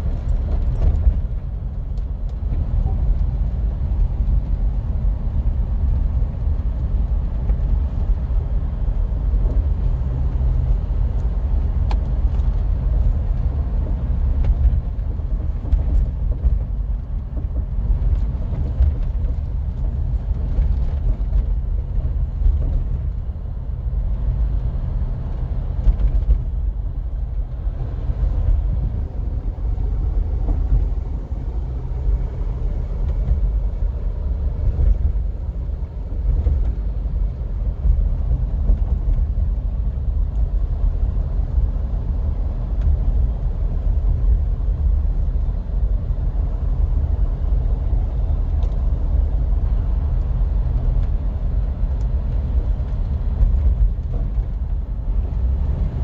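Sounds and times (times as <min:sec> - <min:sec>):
car engine low rumble: 0:00.0 - 0:56.0
road and tyre noise: 0:00.0 - 0:56.0.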